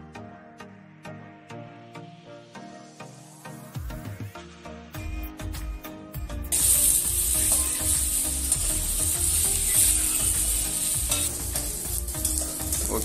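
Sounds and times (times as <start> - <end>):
music: 0.0 - 13.0
onions sizzling in hot oil: 6.5 - 13.0
metal spatula scraping pan: 6.9 - 12.7.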